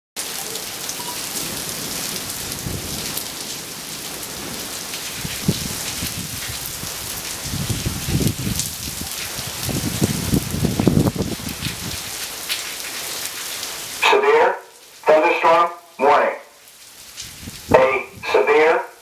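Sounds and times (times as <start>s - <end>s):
rain falling steadily: 0.2s - 19.0s
low rumble of thunder: 1.4s - 3.6s, 4.3s - 12.1s.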